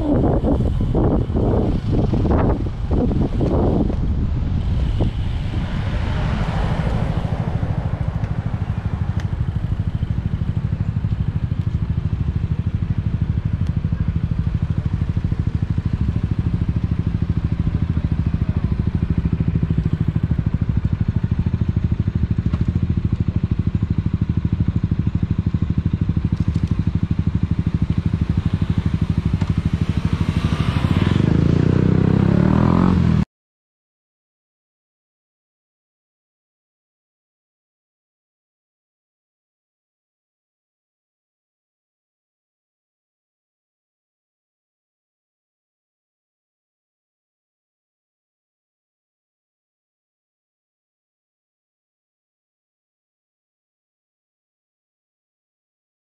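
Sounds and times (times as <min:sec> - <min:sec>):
moped engine idling and revving: 0:00.0 - 0:33.3.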